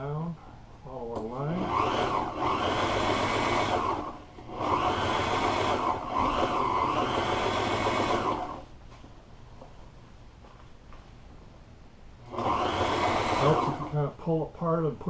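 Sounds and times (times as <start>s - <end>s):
sewing machine stitching: 1.4s - 8.7s, 12.2s - 14.0s.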